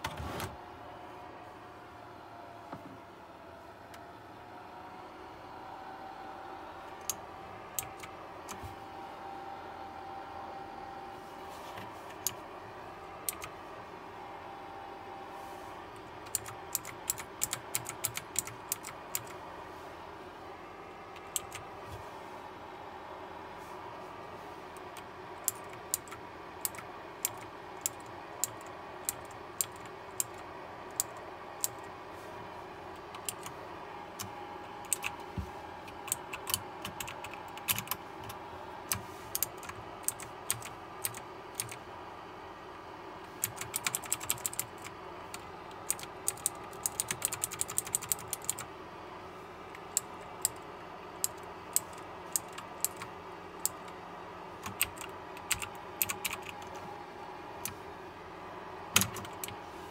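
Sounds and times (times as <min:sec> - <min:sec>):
keyboard keys clicking: 0:07.0 - 0:08.6, 0:13.2 - 0:13.5, 0:16.2 - 0:19.4, 0:21.2 - 0:21.6, 0:24.8 - 0:31.9, 0:34.2 - 0:35.2, 0:35.9 - 0:41.8, 0:43.4 - 0:48.6, 0:51.2 - 0:54.0, 0:54.6 - 0:56.8, 0:59.0 - 0:59.6.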